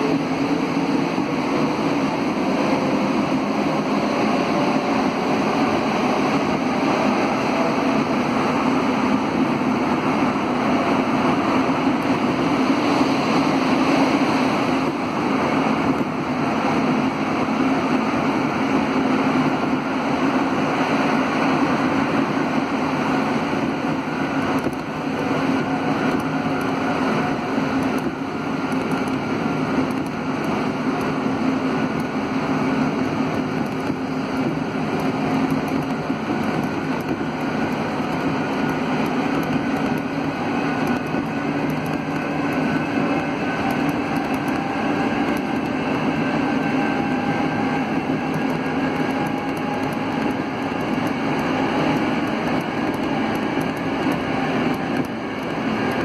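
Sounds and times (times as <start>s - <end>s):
metro train tyres rolling: 0.0s - 56.0s
whine rising in pitch: 22.6s - 56.0s.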